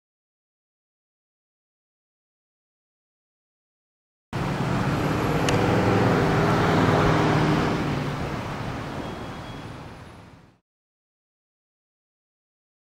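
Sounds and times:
turboprop plane flying past: 4.4s - 9.1s.

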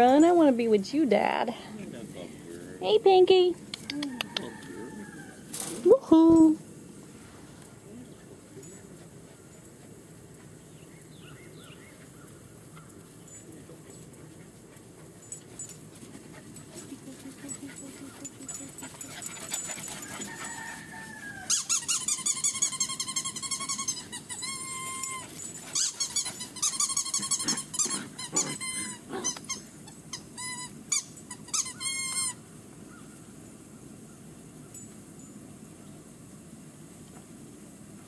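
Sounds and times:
puppies yelping and whining: 16.7s - 32.4s.

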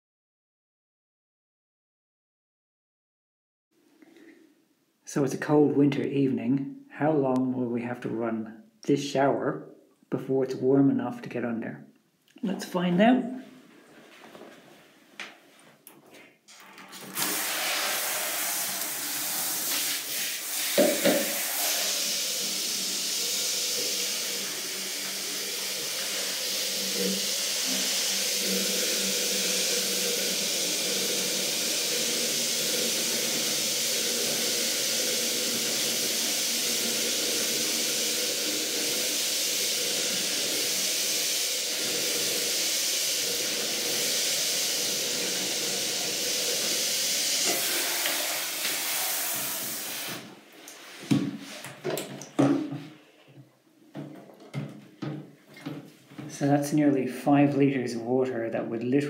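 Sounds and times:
water spraying into plastic can: 16.7s - 52.7s.

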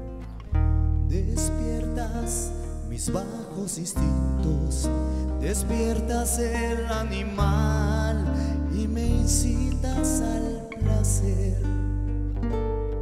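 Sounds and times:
low bass notes: 0.0s - 13.0s.

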